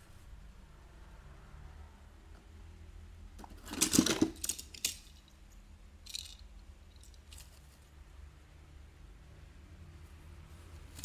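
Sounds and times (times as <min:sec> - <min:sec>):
toy cars clattering in a box: 0:03.4 - 0:05.3, 0:06.0 - 0:07.6.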